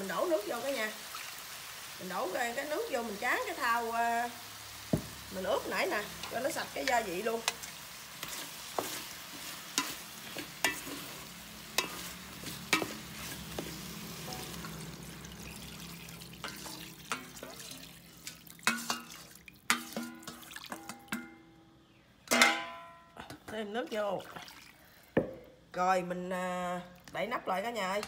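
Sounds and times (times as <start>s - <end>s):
beef sizzling in a pot: 0.0s - 20.8s
water pouring into pot: 0.5s - 3.6s, 10.4s - 21.1s.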